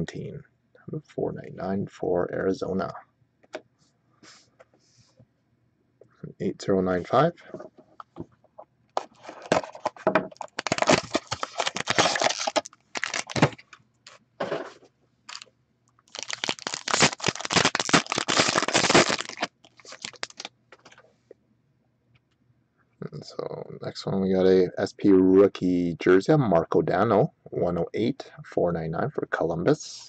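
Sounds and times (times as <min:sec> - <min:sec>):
card pack wrapper crinkling: 0:09.0 - 0:13.8, 0:16.1 - 0:20.9
cardboard box being torn open: 0:10.6 - 0:13.5.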